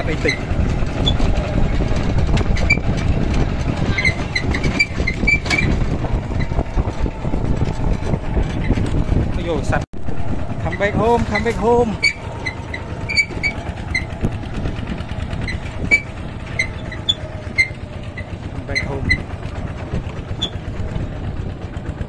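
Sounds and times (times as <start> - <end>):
short high squeaks: 0.0 - 1.5, 2.5 - 3.2, 3.8 - 7.2, 10.7 - 19.4, 20.3 - 20.8
farm vehicle engine running: 0.0 - 22.0.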